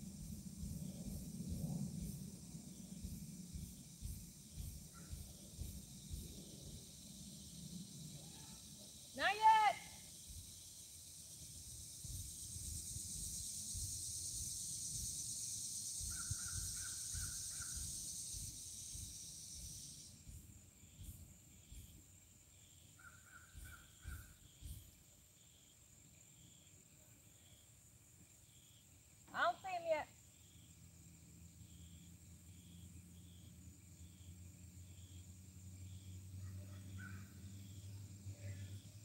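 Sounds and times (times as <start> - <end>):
wind rumble on microphone: 0.0 - 8.3, 11.4 - 19.7
high insect drone: 0.0 - 39.0.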